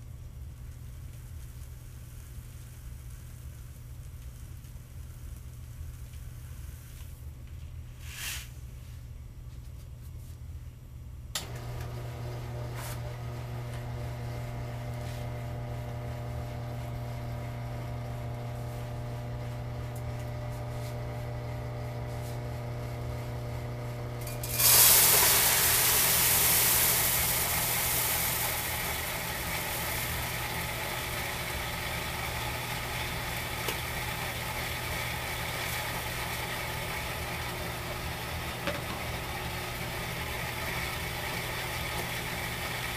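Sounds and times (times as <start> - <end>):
rollers crushing grain: 11.4 - 17.1, 24.2 - 42.9
grain mill motor humming: 11.4 - 42.9
grain pouring into hopper: 24.2 - 42.9.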